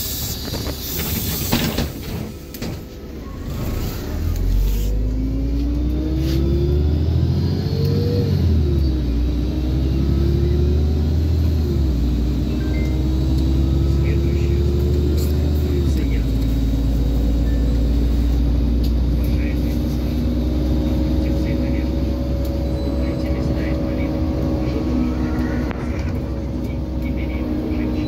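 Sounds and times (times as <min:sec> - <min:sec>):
bus engine rumble: 0:00.0 - 0:28.0
transmission whine: 0:15.8 - 0:28.0.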